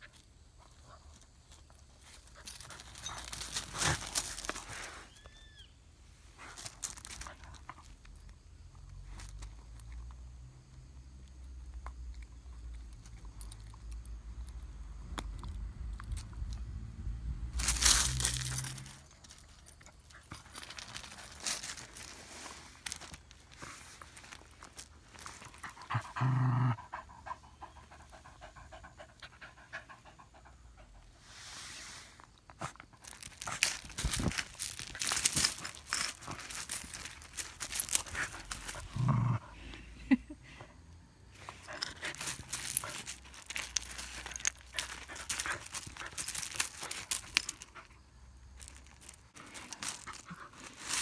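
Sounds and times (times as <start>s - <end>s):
scuffing on gravel: 17.6s - 19.4s, 32.6s - 39.0s, 41.6s - 47.7s
dog panting: 26.8s - 31.1s.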